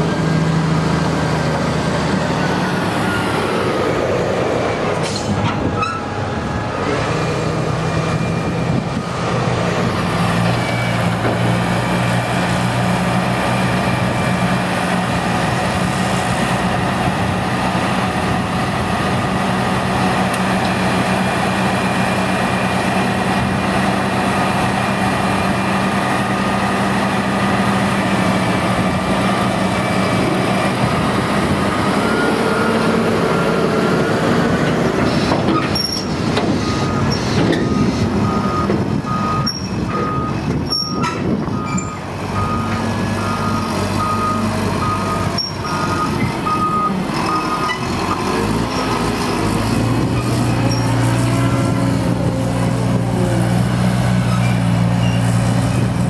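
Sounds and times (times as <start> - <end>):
heavy diesel engines: 0.0 - 56.0
reversing alarm beeps: 36.6 - 47.8.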